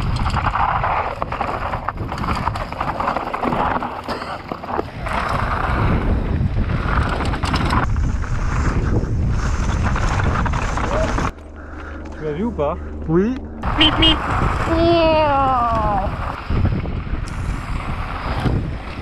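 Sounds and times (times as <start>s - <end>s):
bike clattering over bumps: 0.0s - 12.2s
wind on microphone: 4.8s - 11.3s, 13.6s - 19.0s.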